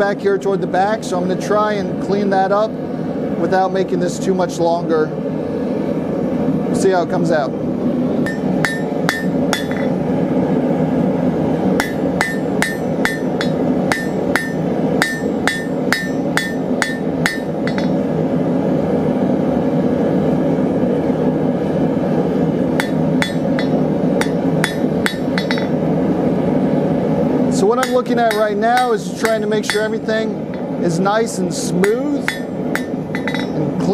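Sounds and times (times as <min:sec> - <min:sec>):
hammer ringing on anvil: 0:08.3 - 0:10.0, 0:11.8 - 0:18.0, 0:22.8 - 0:25.8, 0:27.8 - 0:30.0, 0:31.8 - 0:33.6.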